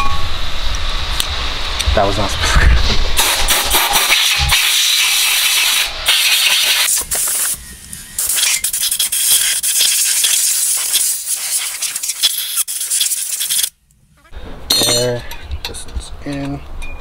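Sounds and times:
air blow gun hissing: 0:03.2 - 0:13.7.

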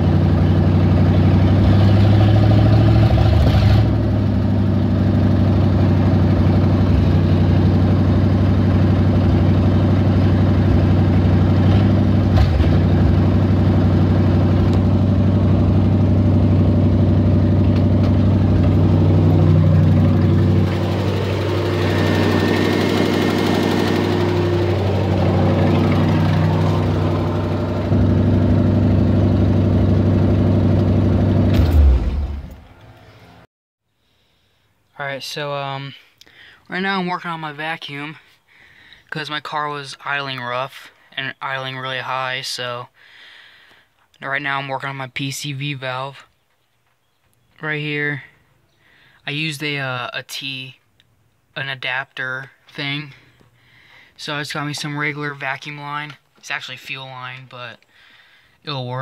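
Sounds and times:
engine idling high and rough: 0:00.0 - 0:33.1.

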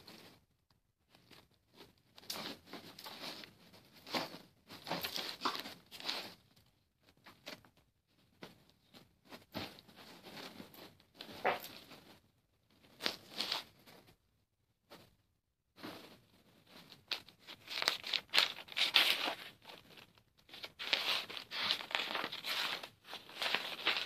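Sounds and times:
comforter rustling: 0:15.8 - 0:24.0.

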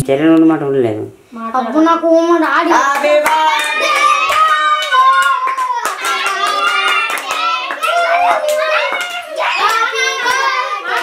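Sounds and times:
hands clapping in rhythm: 0:02.4 - 0:11.0
high voices singing: 0:02.7 - 0:11.0.

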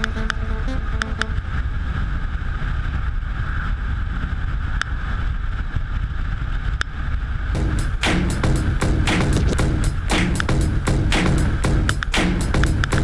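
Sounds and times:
music with a beat: 0:00.0 - 0:01.3, 0:07.6 - 0:13.0
wind rush on microphone: 0:00.0 - 0:13.0.

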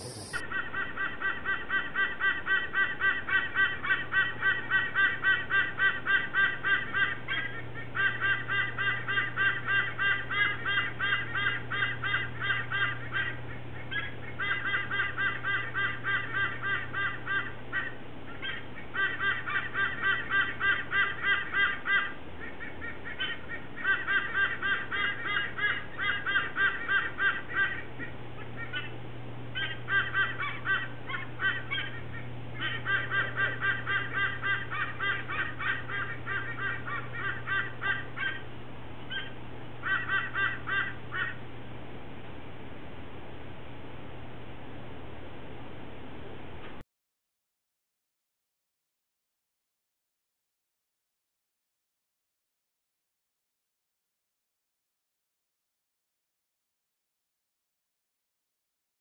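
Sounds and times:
sea eagle honking calls: 0:00.0 - 0:41.4.

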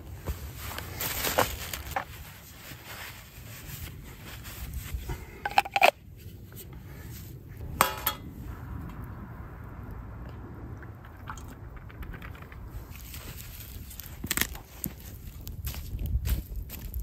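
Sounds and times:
metal pan clinking set down: 0:07.8 - 0:08.2.

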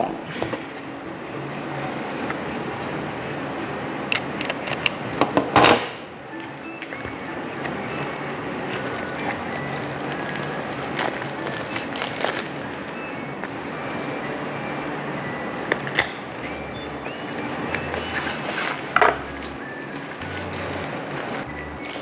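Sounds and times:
quiet background music: 0:00.0 - 0:22.0
plastic bag crinkling: 0:05.7 - 0:14.3, 0:16.3 - 0:22.0.

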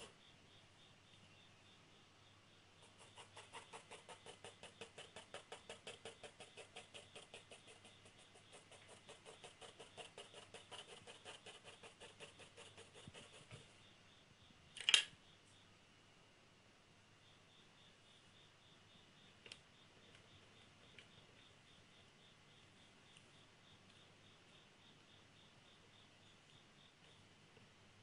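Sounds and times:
pencil shading on paper: 0:02.8 - 0:13.7.

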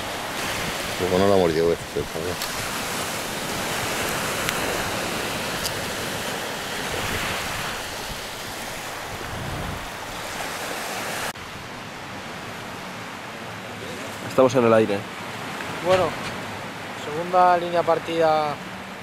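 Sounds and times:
wind on microphone: 0:00.0 - 0:12.6
surf washing on beach: 0:00.0 - 0:19.0.

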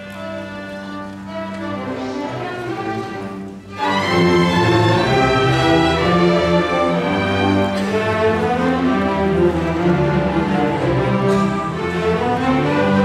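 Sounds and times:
string orchestra playing: 0:00.0 - 0:13.0.

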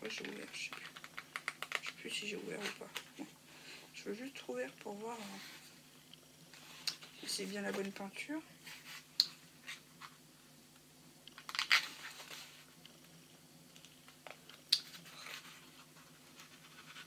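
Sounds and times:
packaging crinkling and tearing: 0:00.1 - 0:02.0, 0:11.3 - 0:12.5.

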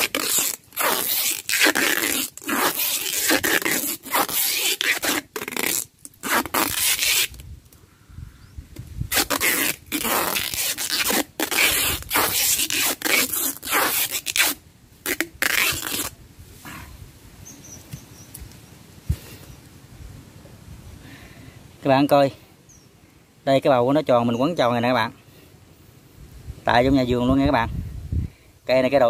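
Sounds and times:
plastic sheeting rustling: 0:00.0 - 0:07.4, 0:09.1 - 0:16.2.

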